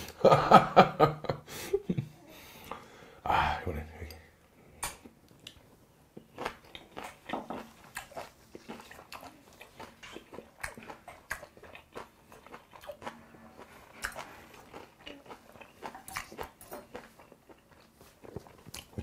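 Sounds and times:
chewing raw meat: 6.2 - 19.0.

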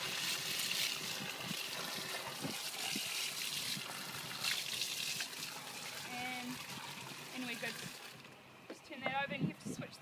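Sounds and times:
water splashing into tank: 0.0 - 8.3.

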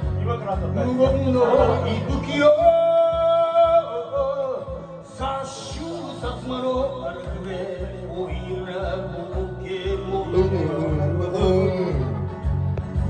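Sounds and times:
backing track with steady beat: 0.0 - 13.0
man singing into a microphone: 0.4 - 12.4.

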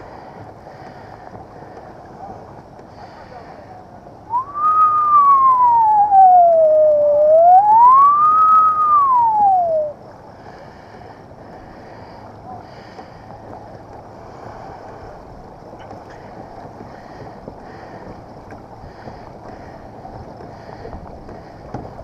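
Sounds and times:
faint wind: 0.0 - 22.0
water sound: 0.0 - 22.0
siren wailing: 5.6 - 8.3.

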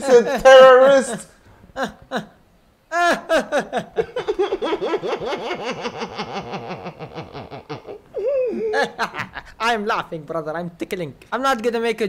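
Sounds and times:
man laughing hard: 1.8 - 9.6.

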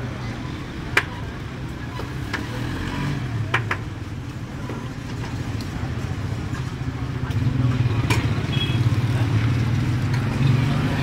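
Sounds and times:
street stall rumble: 0.0 - 11.0.

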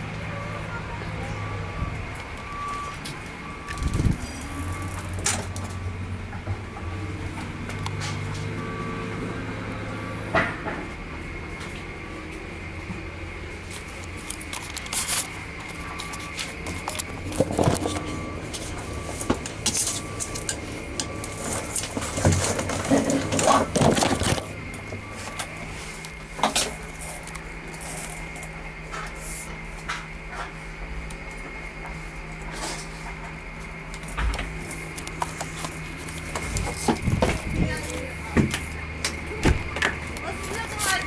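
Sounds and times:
steady low hum: 0.0 - 41.0
handling clicks and scrapes: 13.7 - 18.7, 19.4 - 29.6.

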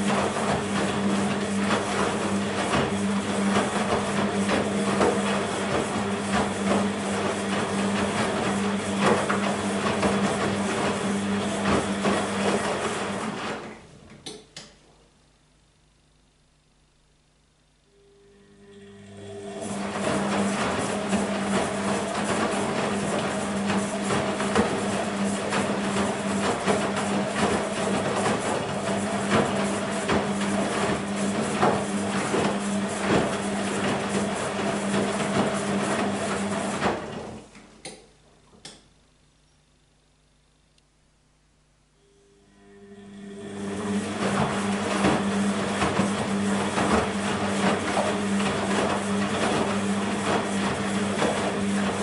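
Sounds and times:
wet laundry thudding and sloshing: 0.0 - 13.6, 19.8 - 37.5, 44.1 - 52.0
washing machine motor hum: 0.0 - 15.7, 16.5 - 39.1, 41.1 - 52.0.

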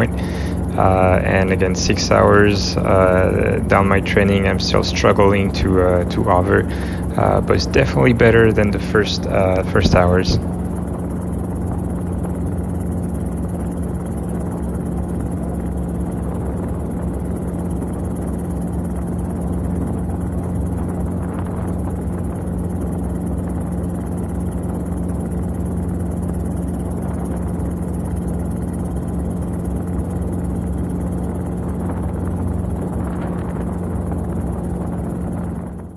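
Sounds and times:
helicopter engine and rotors: 0.0 - 35.9.

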